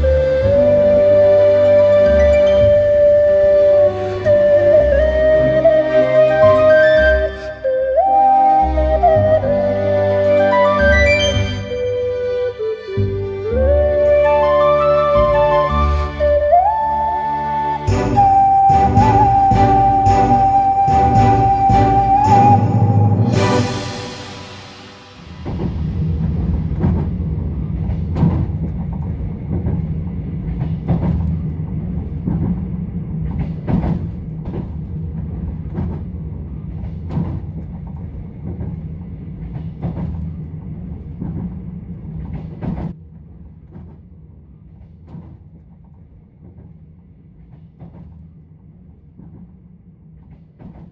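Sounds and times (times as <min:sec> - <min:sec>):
train rumbling on rails: 0:00.0 - 0:50.9
wheel clicks over rail joints: 0:25.4 - 0:48.3.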